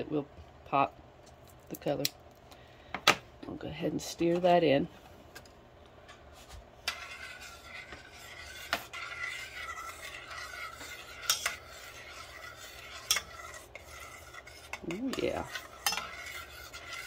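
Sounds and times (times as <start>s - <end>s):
spoon scraping saucepan: 6.8s - 17.0s.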